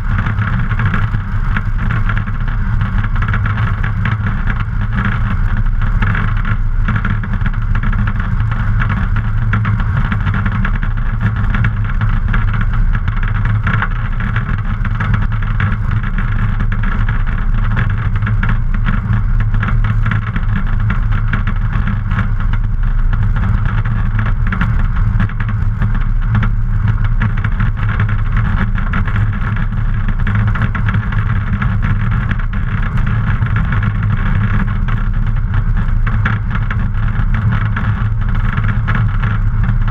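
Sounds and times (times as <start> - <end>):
light aircraft propeller engine: 0.0 - 39.9.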